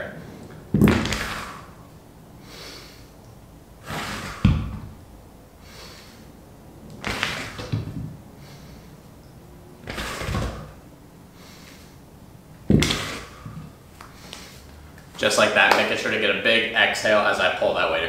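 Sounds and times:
forceful exhales: 0.1s - 3.1s, 3.8s - 4.9s, 5.6s - 6.4s, 7.0s - 9.1s, 9.8s - 12.0s, 12.7s - 14.9s
kettlebell pulled across floor: 3.8s - 5.0s, 7.0s - 8.9s, 9.8s - 10.8s
kettlebell thuds on floor: 4.4s - 4.9s.

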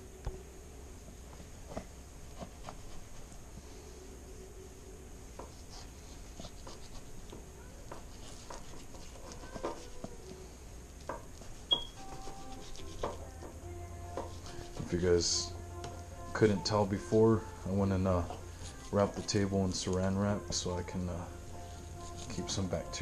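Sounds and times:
knife scraping fish skin: 8.1s - 10.0s, 11.4s - 13.2s
brief high squeak: 11.7s - 12.0s.

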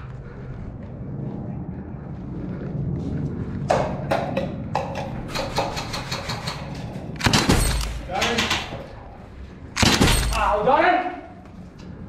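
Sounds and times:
airsoft gunfire: 9.8s - 10.6s.

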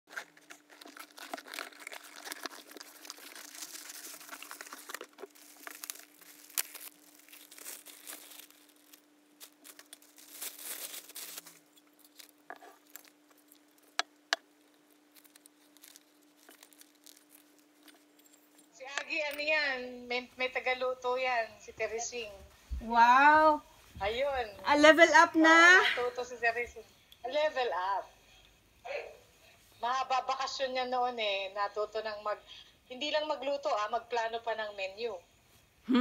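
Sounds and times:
plastic and cardboard crinkling: 0.1s - 18.7s
faint steady hum: 0.1s - 36.0s.

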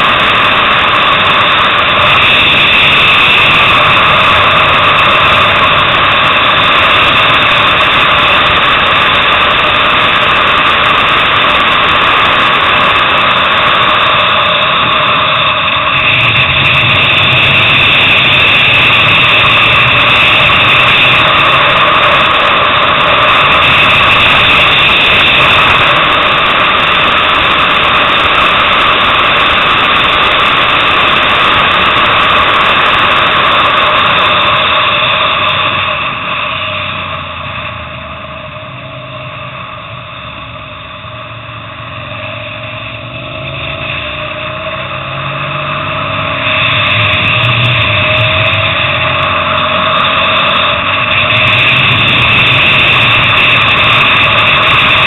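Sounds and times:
motorcycle engine drone: 0.0s - 55.0s
wind rushing noise: 0.0s - 55.0s
wind rushing: 42.1s - 55.0s.

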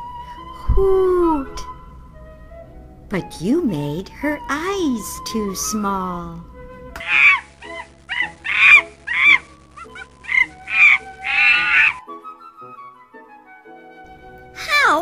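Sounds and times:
soft background music: 0.0s - 15.0s
high-pitched animal calls: 7.0s - 12.0s.

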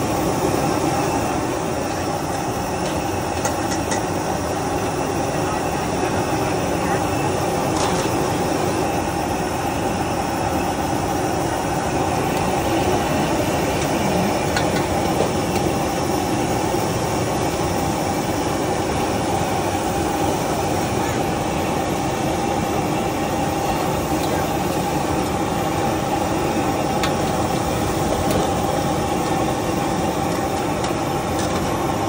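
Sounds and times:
gas wok burner roaring: 11.1s - 19.2s.

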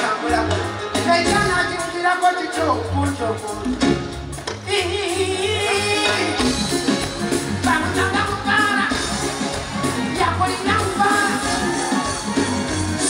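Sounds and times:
live band playing: 0.0s - 13.0s
man singing into a microphone: 4.8s - 6.5s.

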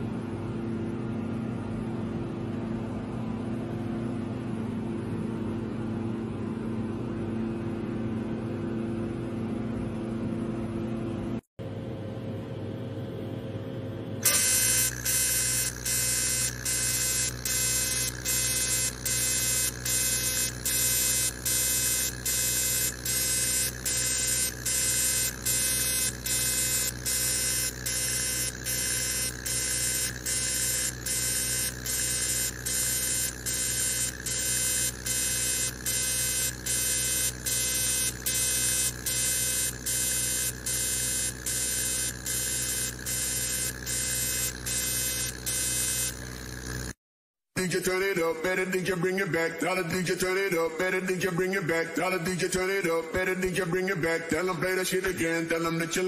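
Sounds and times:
laser machine buzzing: 14.2s - 47.0s.

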